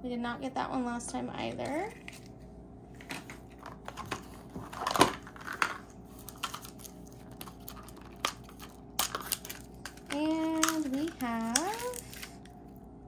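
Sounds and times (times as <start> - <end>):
wrapper crinkling: 4.6 - 12.8.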